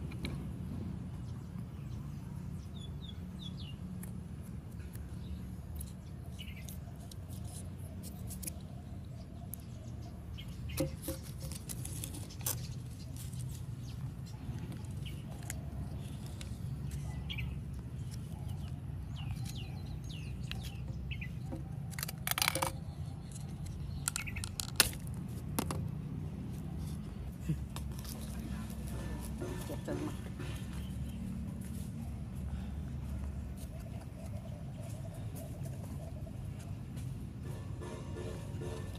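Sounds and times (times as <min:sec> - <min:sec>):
birds chirping: 0:01.1 - 0:22.0, 0:22.7 - 0:24.7, 0:26.3 - 0:38.8.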